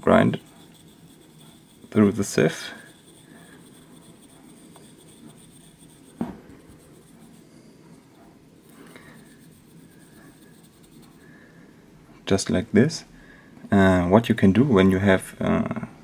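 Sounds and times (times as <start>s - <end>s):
pastel scratching on metal mesh: 0.0s - 11.4s
short thump: 6.2s - 6.6s.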